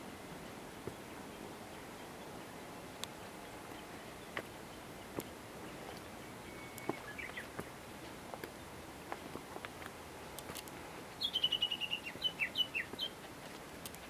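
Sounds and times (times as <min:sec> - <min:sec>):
steady hiss: 0:00.0 - 0:14.0
footsteps on rocky dirt trail: 0:04.3 - 0:11.1, 0:12.8 - 0:14.0
bird call: 0:05.9 - 0:07.7, 0:11.2 - 0:13.2.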